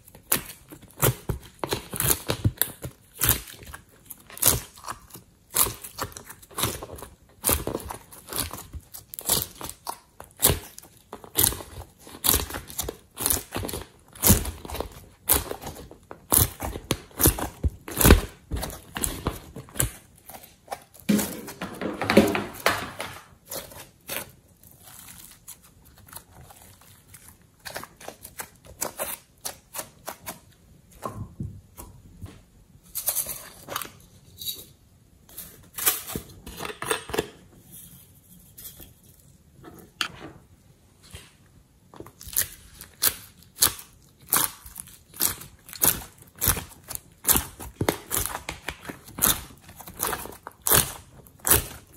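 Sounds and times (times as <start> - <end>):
clay crackling and crunching: 0.0 - 31.1, 41.9 - 51.9.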